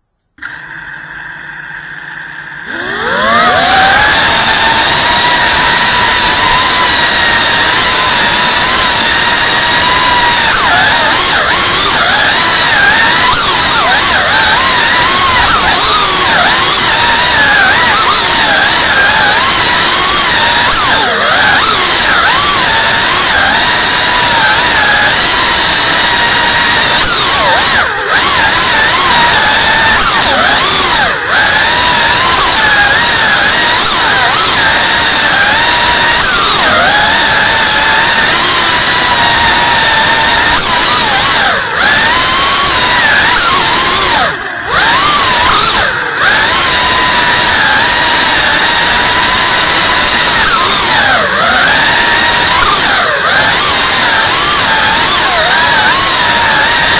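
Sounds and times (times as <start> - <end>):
drone motors whining: 0.0 - 56.9.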